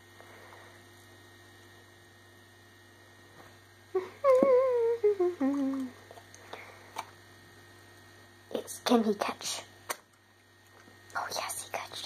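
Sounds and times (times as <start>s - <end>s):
faint electrical hum: 0.0s - 12.0s
person humming a tune: 3.9s - 6.0s.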